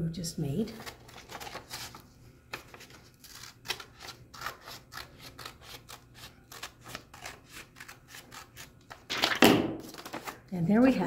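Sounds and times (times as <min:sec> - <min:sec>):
scissors snipping paper: 0:00.8 - 0:09.1.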